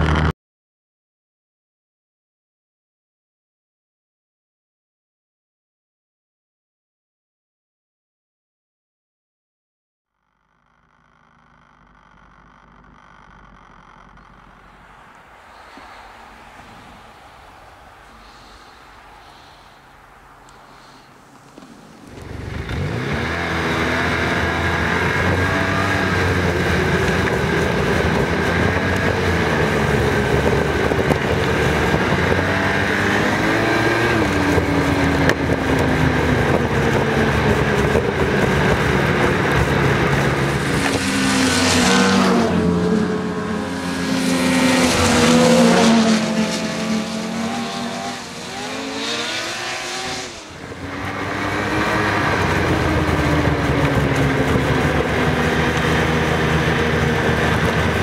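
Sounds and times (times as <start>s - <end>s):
snowmobile engine running: 0.0s - 0.3s, 10.6s - 58.0s
sled passing by: 12.6s - 58.0s.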